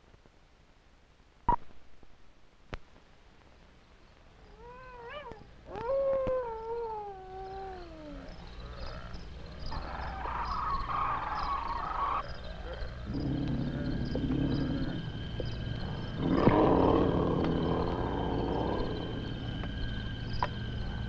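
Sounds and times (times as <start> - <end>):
howling animal cries: 4.4 - 21.0.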